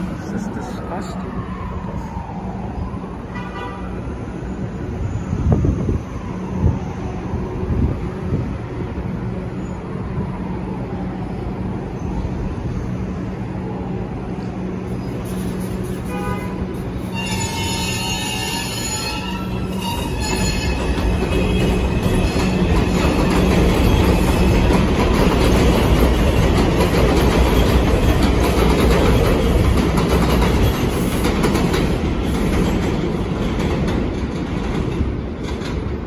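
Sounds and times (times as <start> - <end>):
train wheels rumbling over rails: 11.6 - 36.0.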